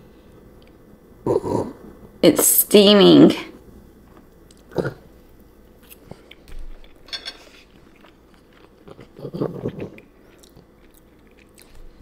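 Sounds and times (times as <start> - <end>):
person chewing food: 4.1 - 12.0.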